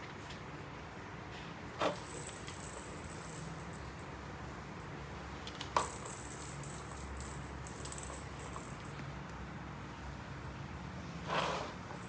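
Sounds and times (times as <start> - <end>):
balls rattling in plastic track: 1.8 - 4.2, 5.4 - 9.0.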